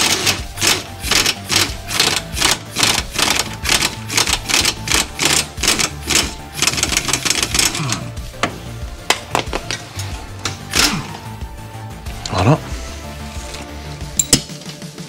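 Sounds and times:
ratchet wrench clicking: 0.0 - 8.0, 14.2 - 14.5
background music: 0.0 - 15.0.

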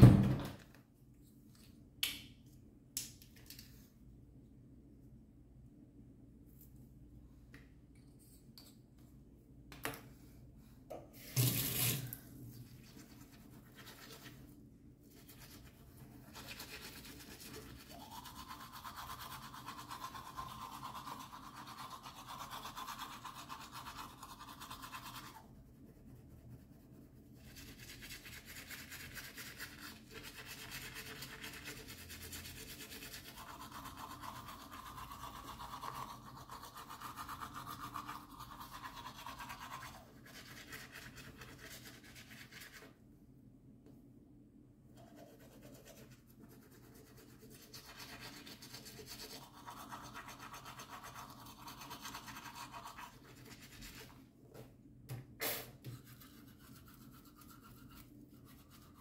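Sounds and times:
toothbrush scrubbing teeth: 15.1 - 26.0, 27.4 - 42.8, 45.0 - 54.2, 56.0 - 59.0.

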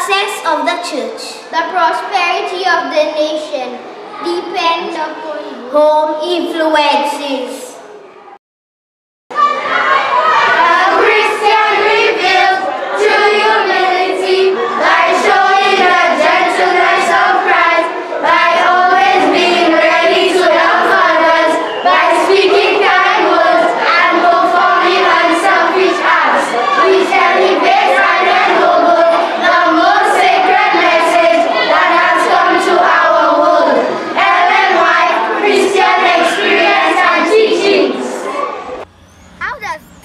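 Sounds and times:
children's choir singing: 9.3 - 38.9.

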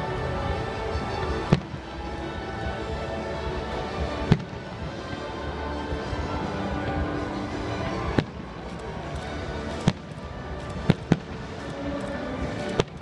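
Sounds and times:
music playing: 0.0 - 13.0.

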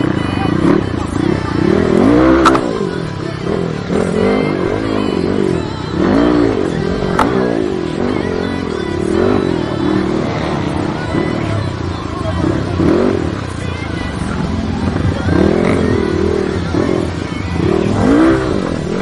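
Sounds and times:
dirt bike engines revving: 0.0 - 19.0
sharp clicks: 2.4 - 2.7.

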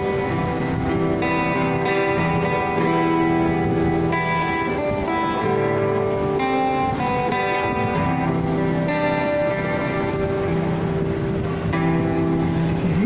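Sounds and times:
electric guitar ringing notes: 0.0 - 13.0.

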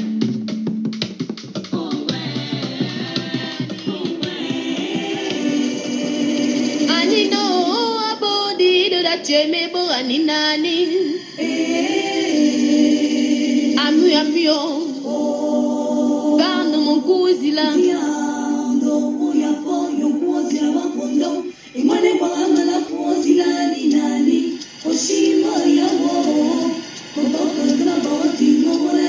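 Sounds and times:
steady held low notes: 0.0 - 8.8
voices singing wavering melody: 1.8 - 9.1, 10.6 - 29.0.

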